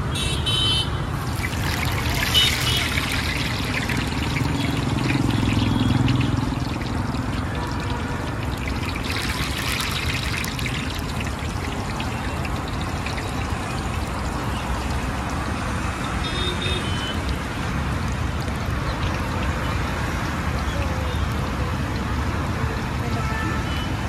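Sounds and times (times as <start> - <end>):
food deep-frying in hot oil: 1.2 - 24.0.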